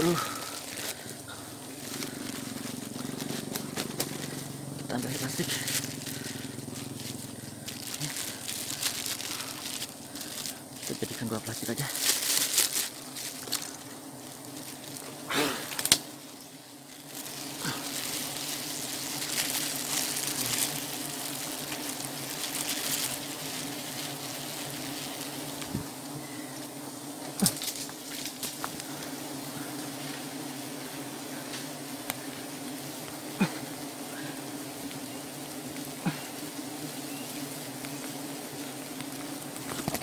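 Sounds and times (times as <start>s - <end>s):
honeybees buzzing: 0.0s - 40.0s
plastic bag crinkling: 0.1s - 15.1s, 17.0s - 25.7s, 39.6s - 40.0s.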